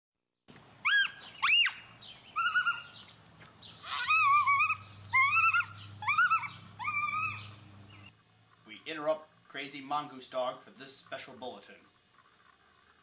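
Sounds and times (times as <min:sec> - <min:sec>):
child squealing cries: 0:00.8 - 0:03.0, 0:03.8 - 0:07.6.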